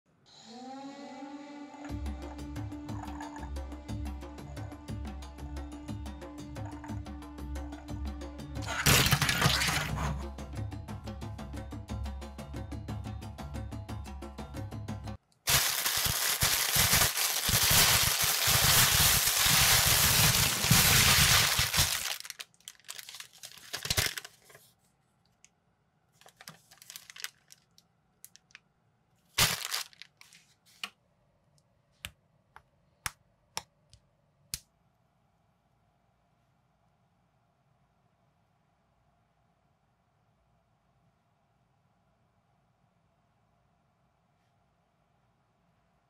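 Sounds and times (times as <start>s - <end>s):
plastic bag crinkling and tearing: 8.7s - 9.9s, 15.5s - 24.6s, 26.2s - 28.6s, 29.4s - 30.4s
paper and plastic rustling: 8.7s - 10.0s, 15.5s - 24.8s, 26.2s - 28.6s, 29.4s - 30.9s.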